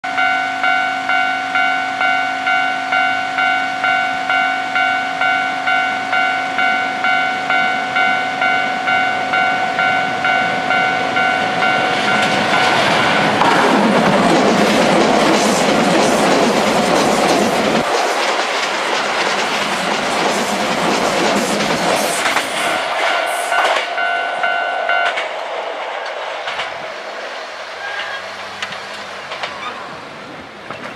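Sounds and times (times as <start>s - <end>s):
level crossing warning bell ringing: 0.0s - 13.5s, 22.6s - 25.4s
train passing at speed: 0.1s - 30.9s.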